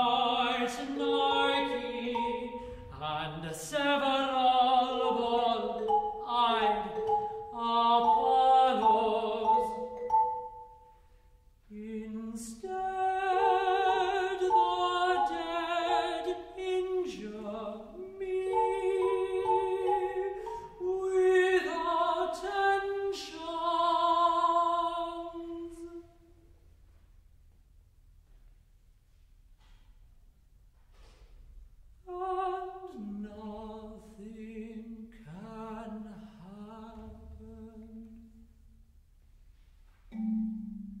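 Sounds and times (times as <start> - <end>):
tenor singing operatically: 0.0 - 10.3, 11.7 - 25.3.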